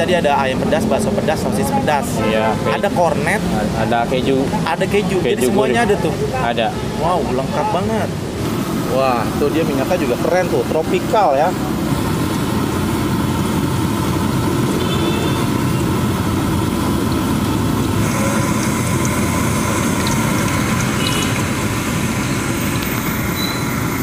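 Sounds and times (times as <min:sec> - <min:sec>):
dough sizzling in hot oil: 0:10.9 - 0:24.0.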